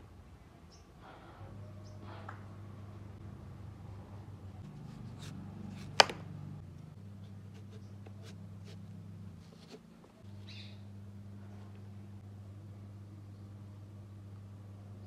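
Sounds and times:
low steady hum: 0.0s - 15.0s
knife cutting watermelon rind: 4.7s - 6.2s.

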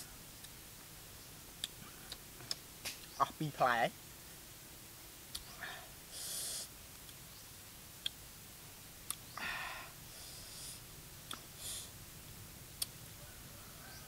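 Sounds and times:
man breathing: 5.5s - 6.7s, 9.3s - 10.9s, 11.5s - 12.0s.

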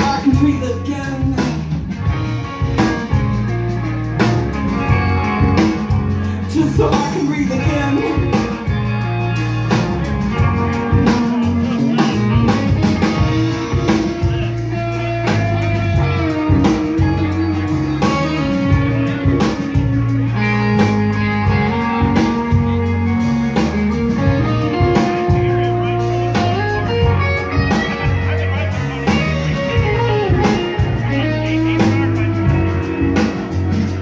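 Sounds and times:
bass guitar: 0.0s - 34.0s
drum kit: 0.0s - 34.0s
electric guitars: 0.0s - 34.0s.

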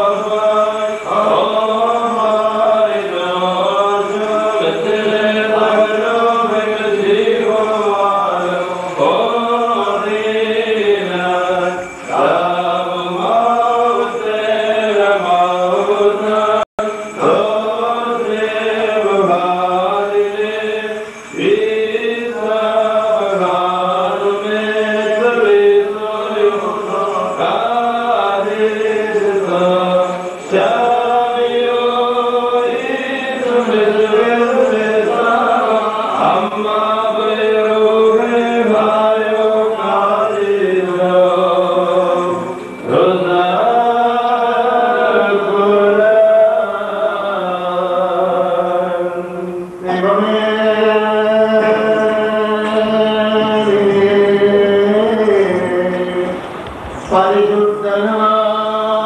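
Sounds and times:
liturgical chant: 0.0s - 59.0s.

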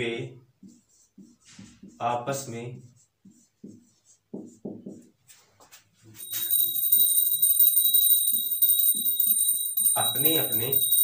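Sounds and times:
marker strokes on whiteboard: 0.6s - 6.0s
mobile phone ringing: 6.2s - 11.0s.

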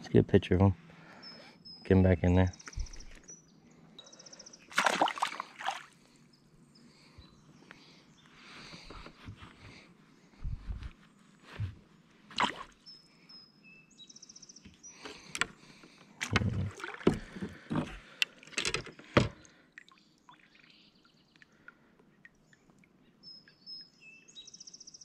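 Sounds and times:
songbird calling: 1.1s - 4.7s, 22.4s - 25.0s.

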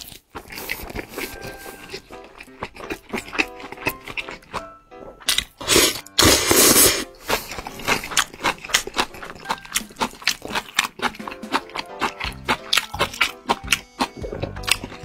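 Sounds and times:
wet chewing clicks: 0.0s - 15.0s
loud slurps: 5.6s - 8.2s.

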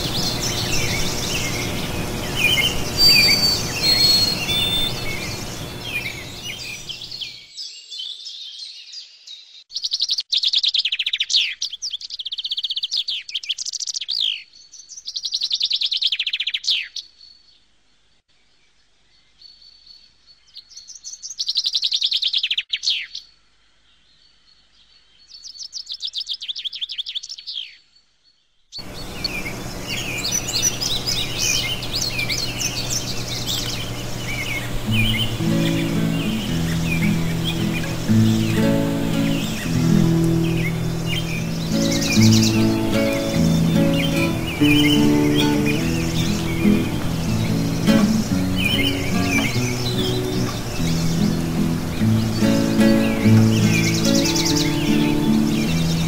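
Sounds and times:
songbird trilling: 0.0s - 17.1s, 28.8s - 56.0s
music: 34.8s - 56.0s.

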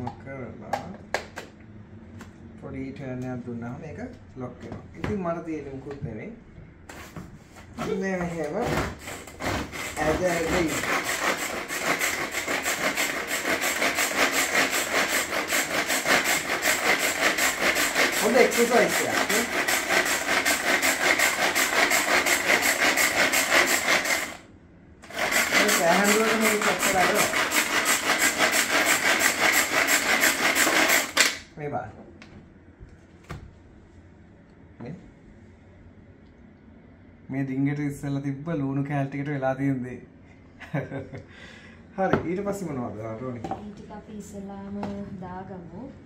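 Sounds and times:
manual food chopper chopping onions: 8.5s - 24.4s, 25.0s - 31.4s.

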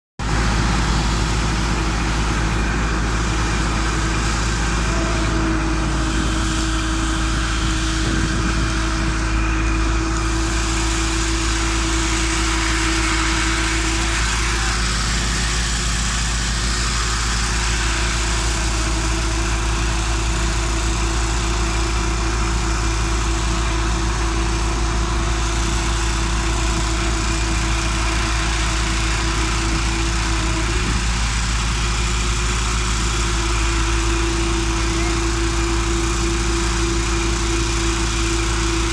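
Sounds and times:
heavy machinery engine drone: 0.2s - 38.9s.

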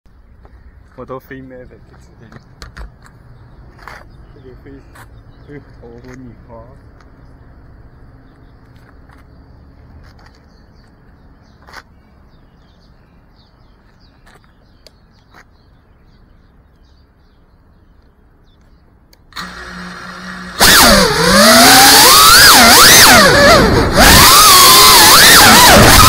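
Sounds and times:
drone motors whining: 19.3s - 26.0s.

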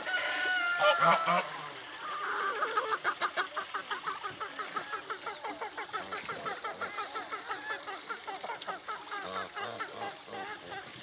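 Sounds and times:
rooster crowing: 0.0s - 1.5s.

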